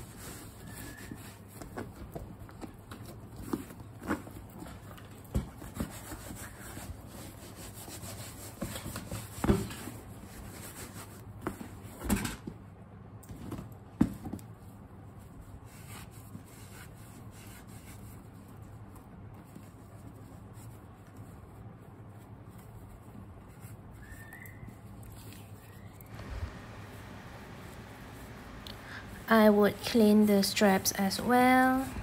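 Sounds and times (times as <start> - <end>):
leather rubbing and scuffing: 22.1 - 30.2.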